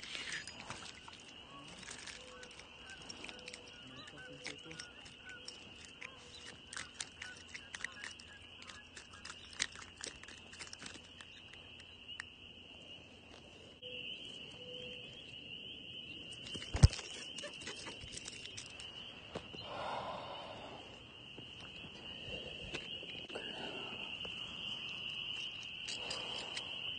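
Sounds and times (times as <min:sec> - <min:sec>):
clicks and rustles of fish handling: 0:00.0 - 0:11.9, 0:16.3 - 0:19.5
frogs calling: 0:00.0 - 0:26.9.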